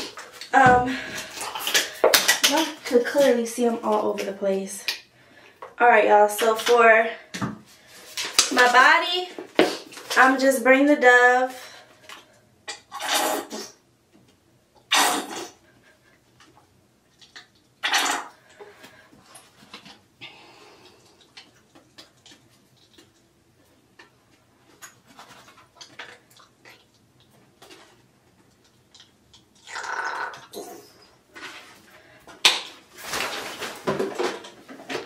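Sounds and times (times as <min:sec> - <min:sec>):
plastic bottles rustling and clattering: 0:31.3 - 0:35.0.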